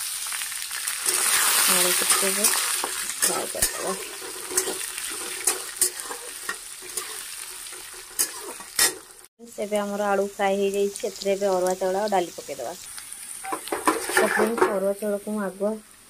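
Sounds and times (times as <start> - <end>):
potatoes sizzling in hot oil: 0.0 - 16.0
metal spatula scraping pan: 1.0 - 9.3, 13.4 - 14.8.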